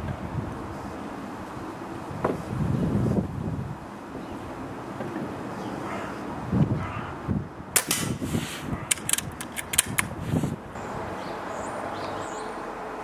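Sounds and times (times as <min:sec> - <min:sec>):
outdoor background: 0:00.0 - 0:13.0
air rifle clicks and knocks: 0:08.9 - 0:10.2.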